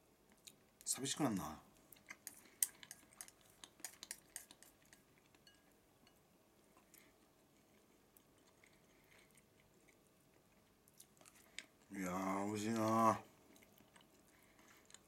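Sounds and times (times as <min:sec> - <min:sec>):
quiet chewing: 0:00.2 - 0:00.9, 0:01.7 - 0:15.0
chopsticks clicking on ceramic bowl: 0:02.2 - 0:04.8.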